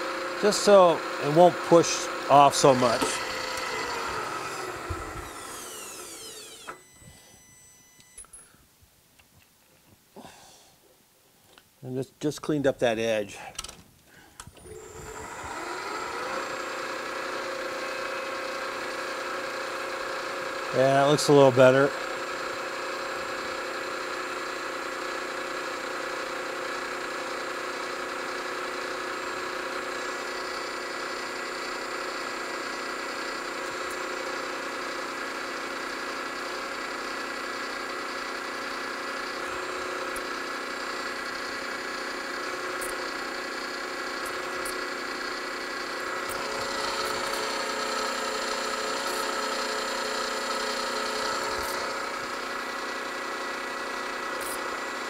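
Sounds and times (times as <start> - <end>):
drill cutting brass: 0.0 - 8.4, 14.6 - 26.1, 38.2 - 55.0
machine spindle running: 0.0 - 8.4, 14.6 - 55.0.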